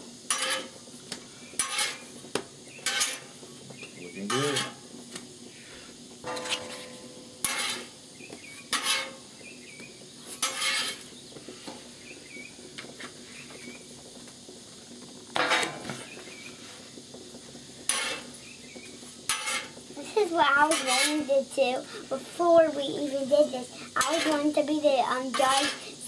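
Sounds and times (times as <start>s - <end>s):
metal spatula scraping griddle: 0.2s - 3.5s, 4.1s - 4.9s, 5.5s - 9.4s, 10.2s - 12.0s, 15.3s - 26.0s.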